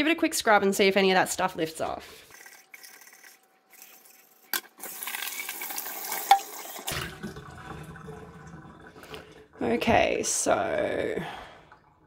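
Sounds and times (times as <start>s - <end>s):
scrubbing inside a steel mug: 2.2s - 4.5s
tap water splashing in sink: 5.0s - 10.3s.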